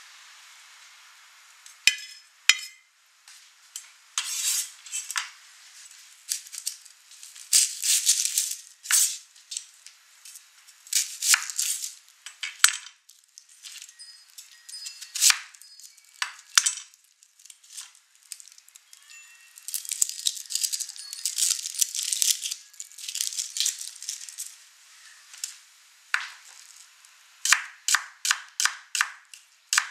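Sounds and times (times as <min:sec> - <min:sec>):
onion skin crackling and rustling: 0:04.2 - 0:27.3.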